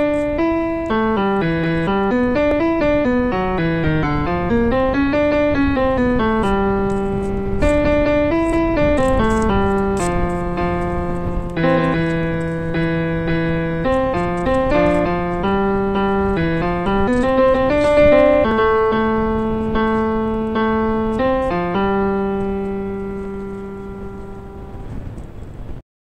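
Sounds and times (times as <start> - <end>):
piano notes: 0.0 - 25.8.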